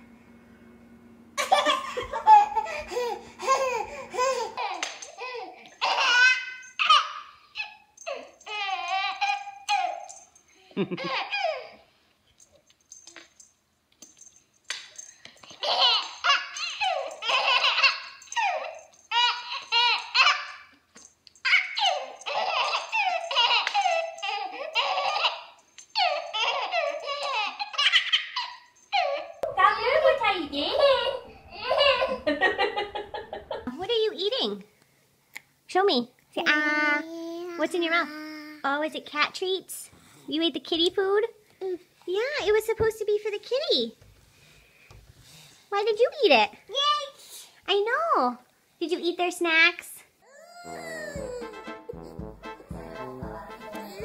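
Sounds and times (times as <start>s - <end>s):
children laughing: 1.4s - 7.1s, 10.7s - 11.7s, 29.9s - 33.7s
baby laughing: 1.4s - 10.1s, 10.8s - 11.8s, 15.5s - 20.6s, 21.4s - 29.4s, 30.6s - 33.7s, 50.4s - 52.2s.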